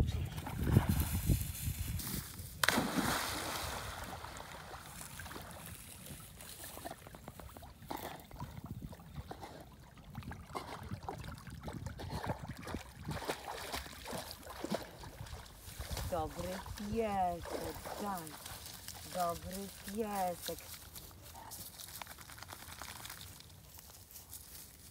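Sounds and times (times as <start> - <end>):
dog splashing into river: 2.6 - 7.1, 12.7 - 16.8
paws churning water: 3.6 - 24.6.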